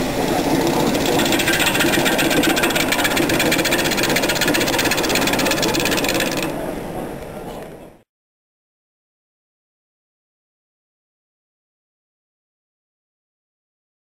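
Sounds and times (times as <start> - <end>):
wood lathe running: 0.0 - 6.6.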